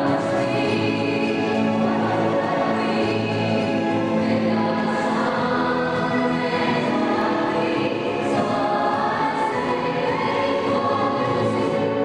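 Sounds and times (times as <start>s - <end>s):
choir singing long notes: 0.0s - 12.0s
steady musical accompaniment: 0.0s - 12.0s.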